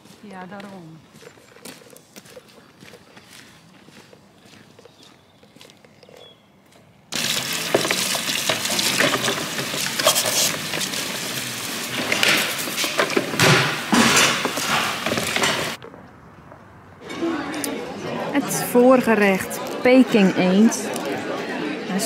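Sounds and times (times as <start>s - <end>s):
tap water running into bowl: 7.2s - 13.6s
dish brush scrubbing plates: 7.2s - 15.8s
dishes clinking: 11.9s - 15.8s.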